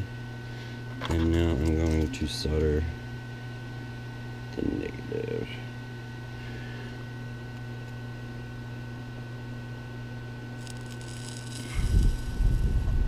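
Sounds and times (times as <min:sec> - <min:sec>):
bench fan humming: 0:00.0 - 0:13.0
soldering iron hiss: 0:10.6 - 0:13.0.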